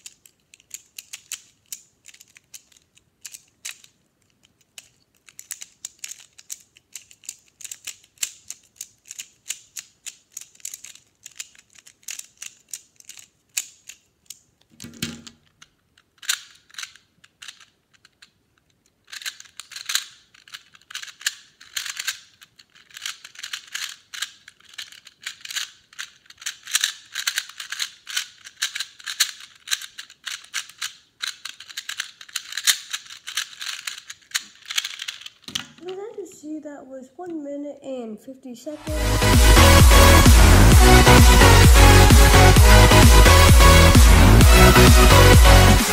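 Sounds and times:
plastic puzzle clicking: 0.0 - 36.3.

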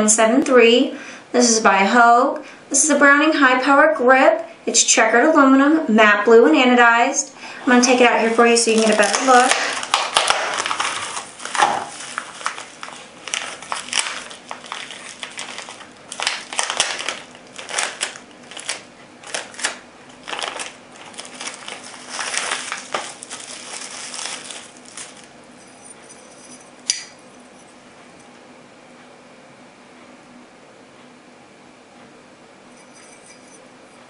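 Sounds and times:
bubble wrap and plastic crinkling: 7.7 - 26.0.

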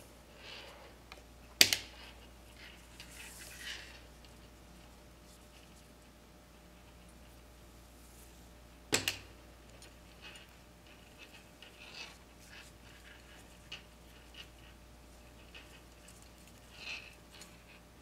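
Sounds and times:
cord rustling and scratching: 0.4 - 8.5, 9.7 - 18.0.

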